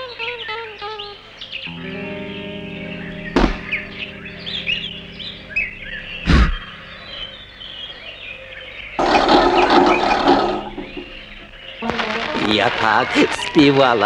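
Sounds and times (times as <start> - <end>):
small birds chirping: 0.0 - 14.0
low thump: 3.3 - 3.8
loud burst of harsh noise: 9.0 - 11.6.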